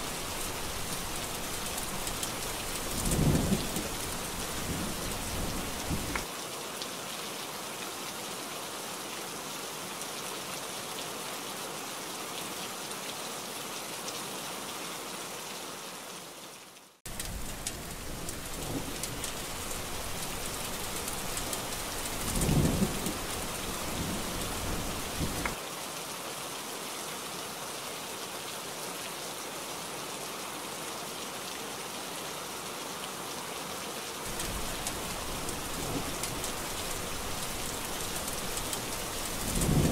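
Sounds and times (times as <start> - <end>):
heavy rain: 0.0 - 39.9
thunder rumbling: 2.7 - 6.2, 17.1 - 25.6, 34.3 - 39.9.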